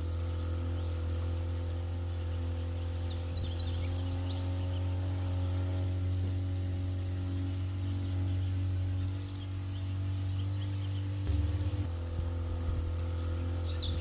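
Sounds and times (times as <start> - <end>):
boat motor running: 0.0 - 14.0
bird chirps: 7.7 - 11.9, 13.2 - 14.0.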